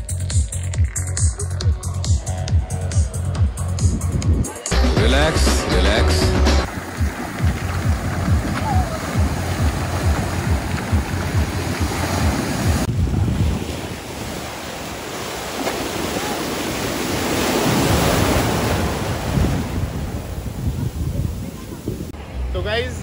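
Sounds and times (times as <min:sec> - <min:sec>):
wave breaking: 0:05.1 - 0:22.2
sea surf washing onto beach: 0:06.6 - 0:22.2
wind buffeting microphone: 0:06.7 - 0:14.8, 0:17.0 - 0:22.2.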